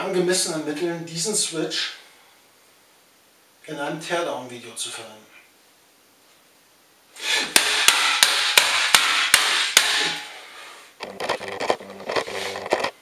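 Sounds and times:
hammer striking network switch: 7.5s - 10.3s.

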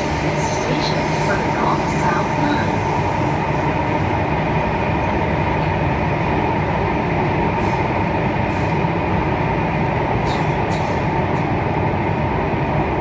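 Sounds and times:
train rumbling with hum: 0.0s - 13.0s.

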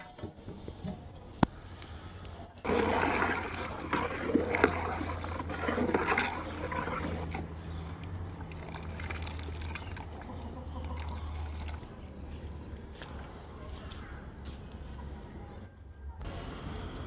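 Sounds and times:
liquid boiling: 2.6s - 11.8s
liquid sloshing in a pot: 2.6s - 12.0s.

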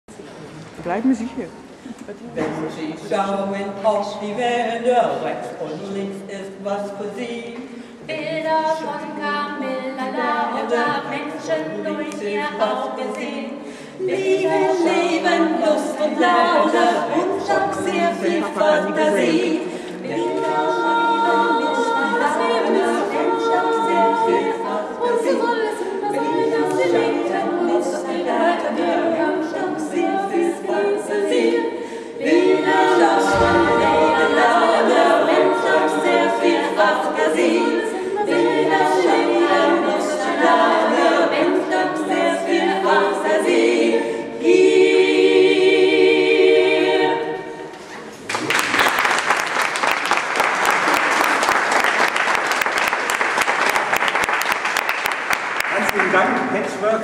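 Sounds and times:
women singing a cappella harmony: 3.1s - 47.7s
applause: 48.3s - 56.5s.

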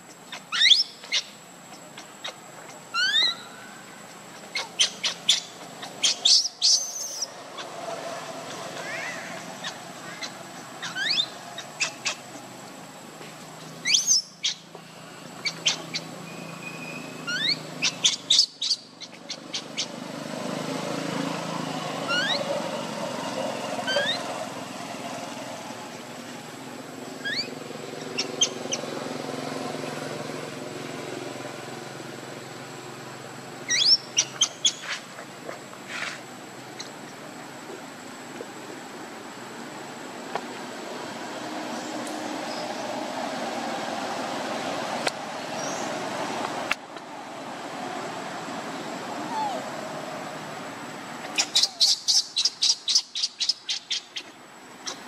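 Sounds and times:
outdoor background noise: 0.0s - 55.0s
high rising chirping calls: 0.1s - 7.8s, 8.4s - 12.5s, 13.6s - 20.0s, 21.9s - 22.6s, 23.8s - 24.4s, 27.1s - 28.9s, 33.6s - 35.0s, 51.2s - 55.0s.

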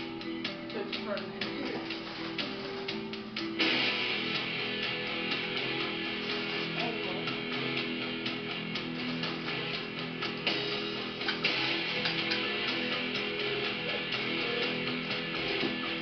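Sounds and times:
rock song with strummed guitar: 1.4s - 16.0s.

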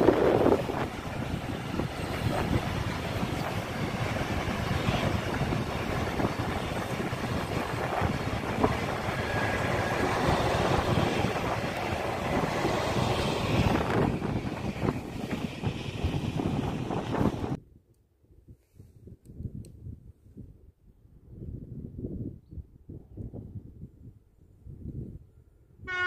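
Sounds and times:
train wheels rumbling on track: 0.0s - 17.6s
wind on microphone: 0.0s - 17.6s, 18.3s - 26.0s.

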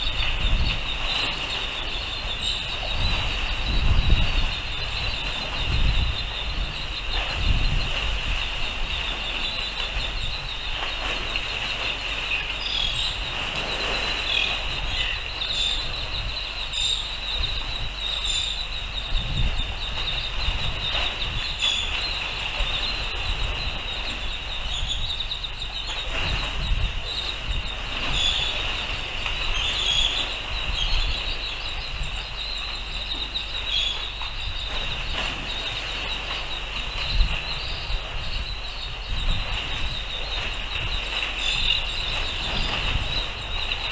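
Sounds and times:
wind buffeting microphone: 0.0s - 43.9s.

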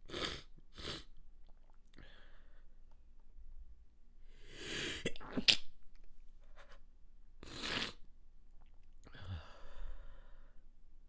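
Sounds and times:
noisy breaths: 9.1s - 10.8s.

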